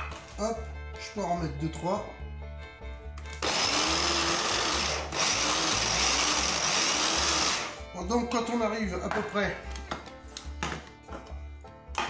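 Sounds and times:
electric mini chopper blending: 0:03.4 - 0:07.8.

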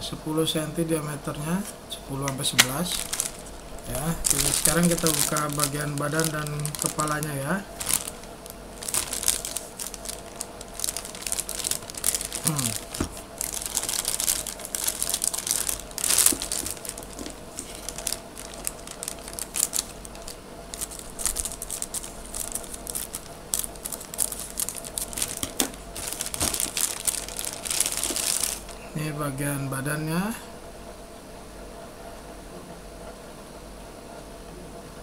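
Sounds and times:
plastic bags crinkling: 0:02.3 - 0:28.9.

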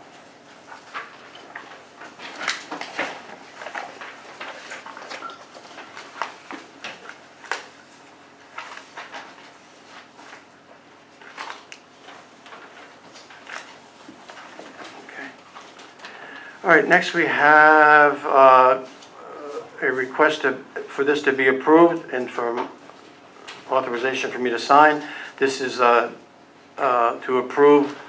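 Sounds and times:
papers rustling: 0:00.0 - 0:17.2.

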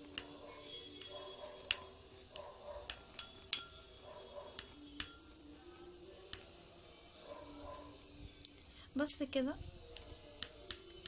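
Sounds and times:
spoon clinking against glass bowl: 0:02.8 - 0:05.5.

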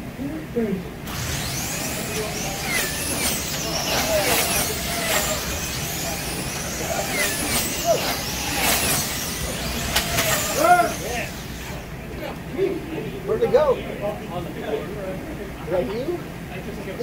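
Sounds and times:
slot car motors whining: 0:01.0 - 0:12.5
cars hissing along slotted track: 0:01.1 - 0:12.2.

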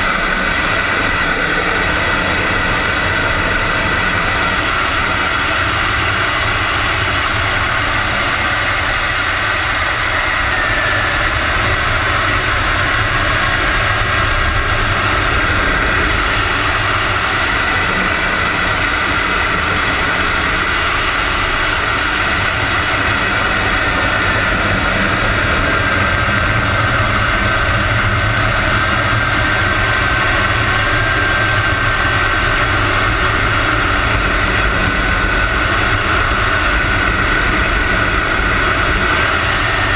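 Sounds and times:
model jet engine whine: 0:00.0 - 0:39.9.

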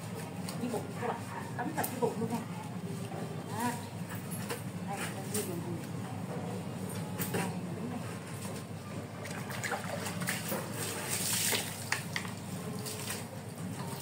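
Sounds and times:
dipper scooping water: 0:09.1 - 0:14.0.

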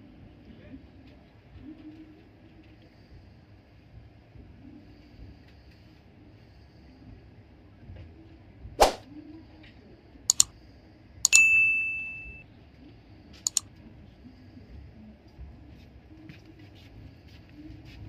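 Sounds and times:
sharp clicks: 0:10.3 - 0:10.5
metallic ding: 0:11.3 - 0:12.4.

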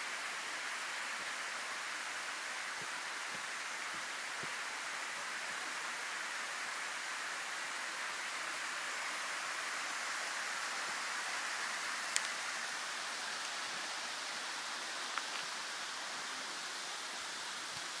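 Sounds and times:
mountain stream rushing: 0:00.0 - 0:18.0.

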